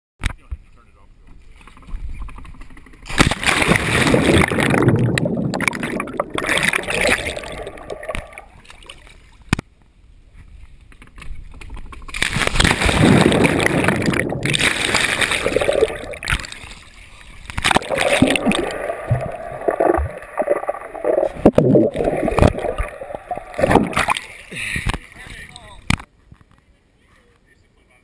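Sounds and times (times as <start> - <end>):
splash into swimming pool: 3.1 - 9.2, 12.1 - 24.4
muffled underwater rushing and bubbling: 3.4 - 8.6, 12.4 - 24.4.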